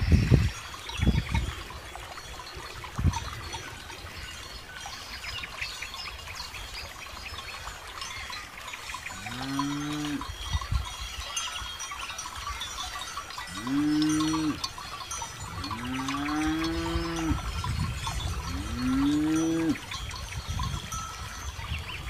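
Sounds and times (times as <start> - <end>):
cow bells tinkling: 0.0 - 22.0
cattle mooing: 9.2 - 10.2, 13.6 - 14.7, 15.6 - 17.5, 18.5 - 19.8.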